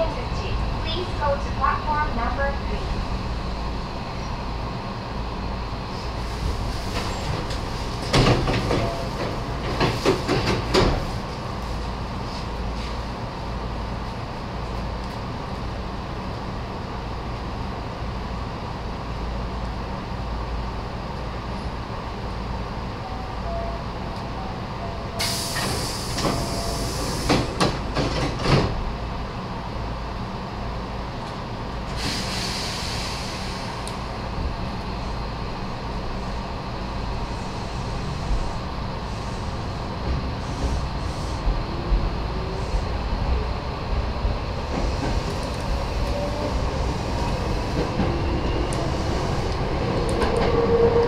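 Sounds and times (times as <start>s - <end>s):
electric train rumbling: 0.0s - 51.0s
train wheels clattering over track: 6.8s - 11.4s, 25.2s - 28.8s, 44.6s - 51.0s.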